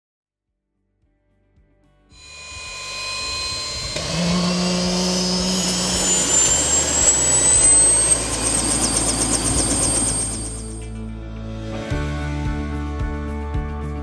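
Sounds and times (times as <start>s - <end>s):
helicopter turbine whine: 2.2s - 11.0s
rotor pulsing: 2.2s - 11.0s.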